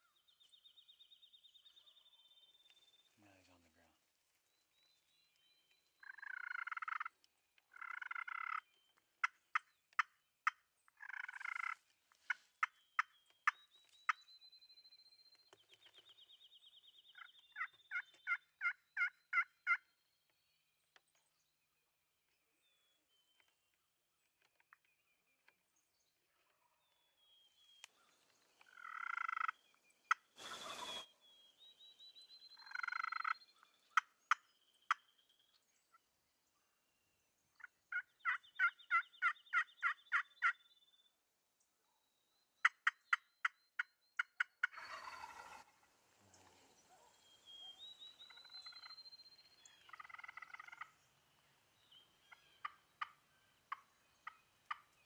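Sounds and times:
wild turkey gobbling: 6.0 - 13.6, 17.2 - 19.8, 28.6 - 31.0, 32.6 - 35.0, 37.9 - 40.6, 44.2 - 48.9, 49.6 - 51.1, 51.8 - 55.0
short bird calls: 27.6 - 35.2, 44.2 - 51.0.

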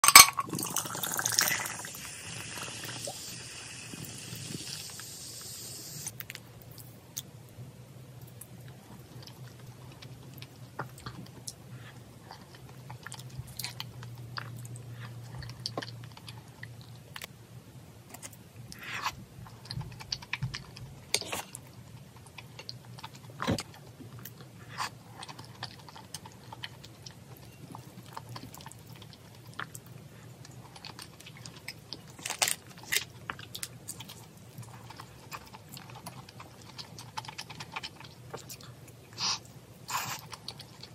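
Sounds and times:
low steady hum: 0.0 - 40.9
chewing and mouth noises: 8.2 - 17.3, 18.1 - 40.9.

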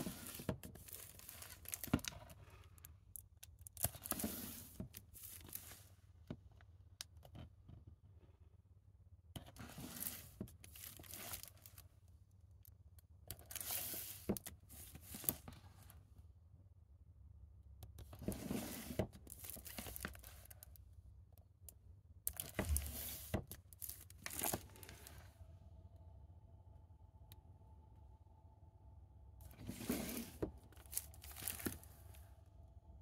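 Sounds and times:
handling rustling and scraping: 0.0 - 6.5, 9.4 - 11.8, 13.3 - 16.1, 18.0 - 20.8, 22.3 - 25.4, 29.4 - 32.4.

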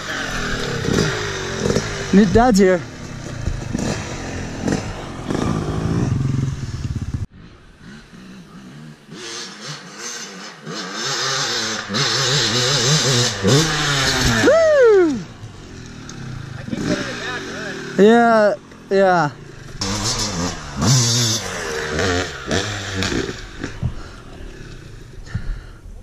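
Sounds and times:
dirt bike engine revving: 0.0 - 25.4.

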